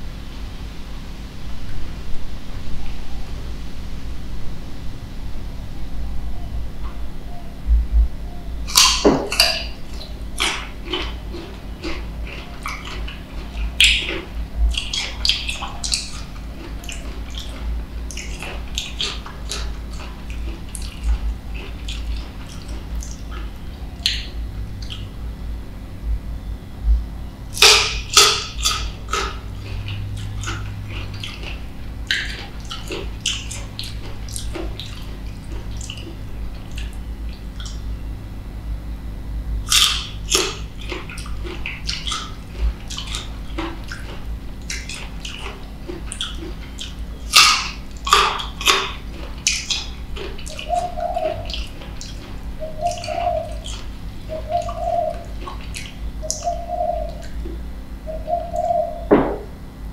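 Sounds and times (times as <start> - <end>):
dove cooing: 5.6 - 25.5, 39.7 - 59.5
crisp biting and wet chewing: 8.6 - 25.3, 27.5 - 37.9, 39.6 - 58.4.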